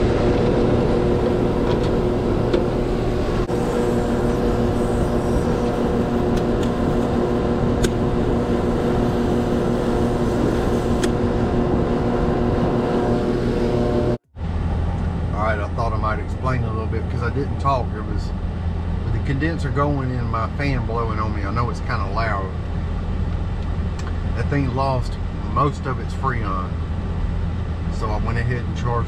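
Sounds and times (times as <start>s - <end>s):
air conditioner condenser humming: 0.0s - 29.0s
fan blowing on microphone: 0.0s - 29.0s.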